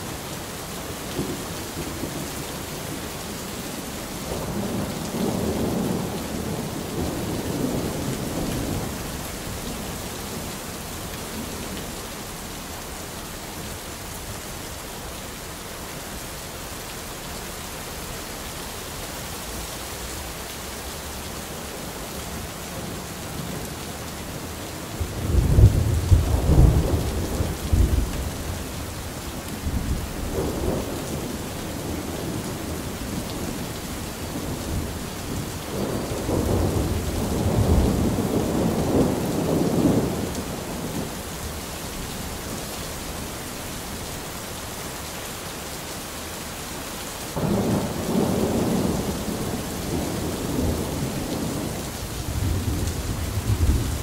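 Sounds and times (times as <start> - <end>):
steady rain: 0.0 - 54.0
rolling thunder: 25.0 - 28.8, 34.4 - 41.1, 47.4 - 54.0.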